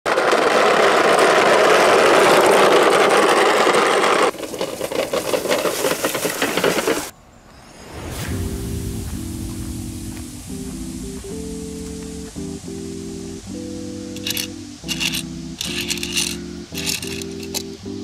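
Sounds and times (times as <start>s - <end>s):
small wheels rattling on bricks: 0.1s - 7.1s, 14.2s - 17.8s
wheels rustling through dry grass: 0.2s - 7.1s, 9.0s - 17.8s
guitar music: 9.2s - 18.0s.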